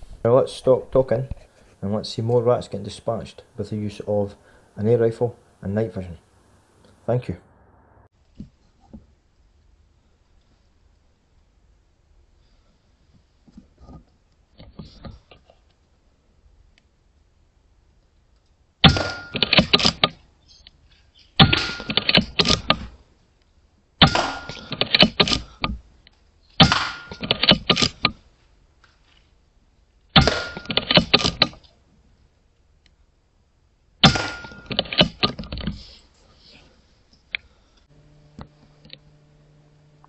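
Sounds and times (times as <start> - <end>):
air rifle shots: 26.6 - 27.8, 30.2 - 31.4, 34.0 - 35.0
clicks and knocks: 30.2 - 31.7, 34.0 - 35.8.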